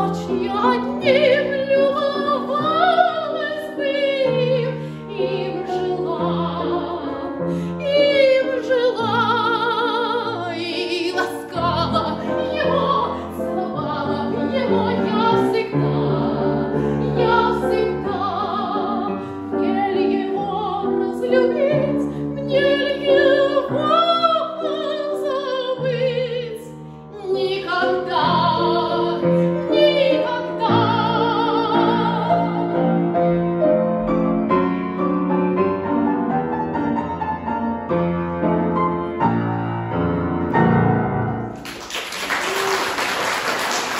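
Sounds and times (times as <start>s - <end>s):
woman singing operatically: 0.0s - 32.6s
grand piano: 0.0s - 43.9s.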